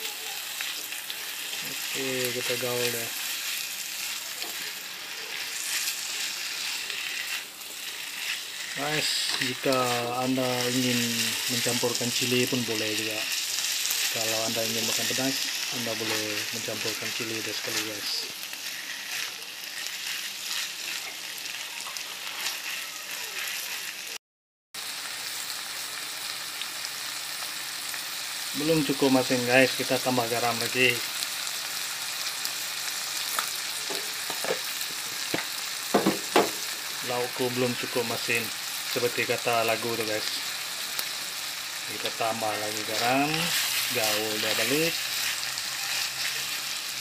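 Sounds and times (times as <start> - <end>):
vegetables sizzling in a wok: 0.0 - 24.2, 24.8 - 47.0
spatula scraping a wok: 0.6 - 24.1, 40.3 - 47.0
spatula tossing food in wok: 40.3 - 47.0.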